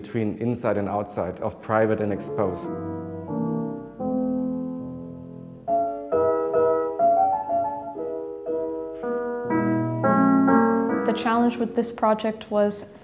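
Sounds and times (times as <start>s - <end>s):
piano music: 0.0s - 12.5s.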